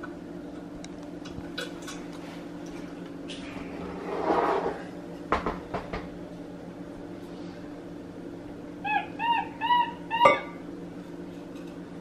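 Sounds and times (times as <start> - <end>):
monkey chirping: 8.8 - 10.3.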